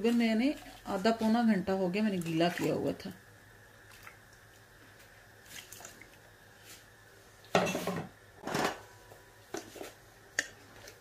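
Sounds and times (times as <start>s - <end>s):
faint steady hum: 0.0s - 11.0s
pot and utensil clatter: 7.6s - 8.9s.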